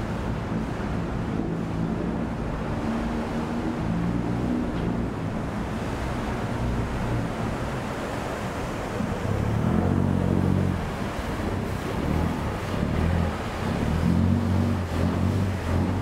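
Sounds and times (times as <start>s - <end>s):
boat engine running: 0.0s - 16.0s
churning splashing water: 0.0s - 16.0s.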